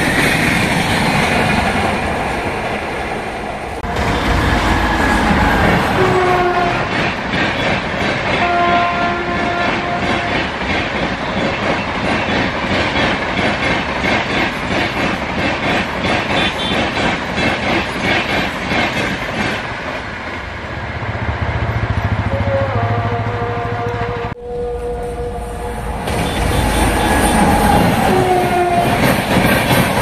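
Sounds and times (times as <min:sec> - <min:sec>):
locomotive horn: 0:03.8 - 0:07.0, 0:08.4 - 0:10.5, 0:22.2 - 0:29.2
train wheels clattering over rail joints: 0:03.9 - 0:20.2, 0:26.0 - 0:30.0.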